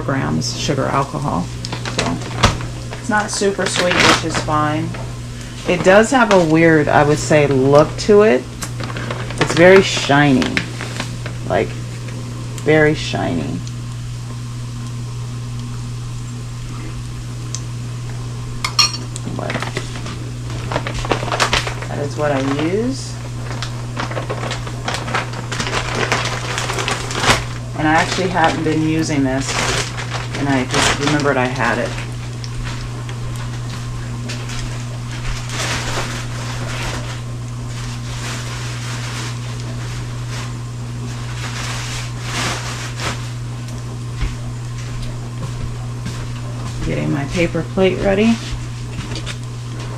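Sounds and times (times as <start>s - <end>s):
low hum: 0.0s - 36.6s
bacon sizzling in a frying pan: 0.7s - 42.2s
spoon clinking in glass mug: 18.6s - 19.1s
spoon scraping and rattling: 18.6s - 19.1s.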